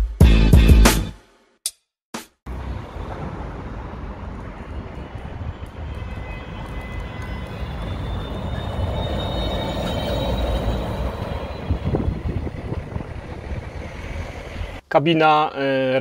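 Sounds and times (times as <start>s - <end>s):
truck tyre noise and rumble: 2.5s - 14.8s.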